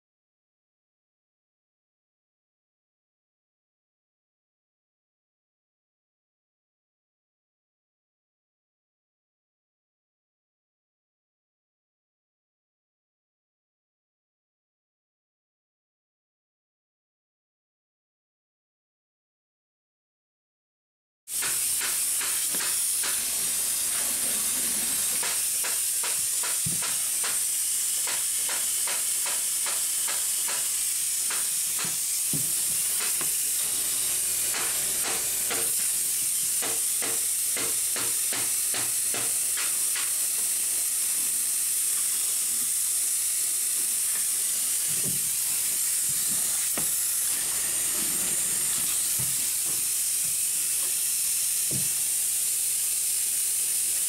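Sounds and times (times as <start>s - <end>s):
insulation blowing through hose: 21.3s - 54.0s.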